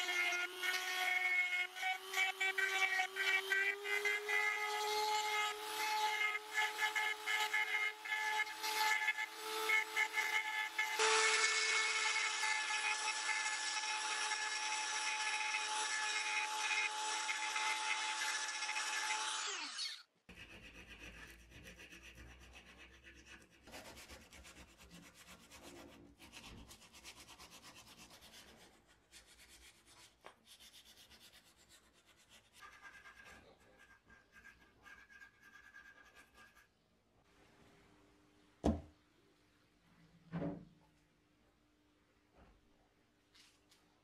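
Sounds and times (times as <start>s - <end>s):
rotary tool grinding whine: 0.0s - 20.1s
sandpaper rubbing: 20.3s - 36.7s.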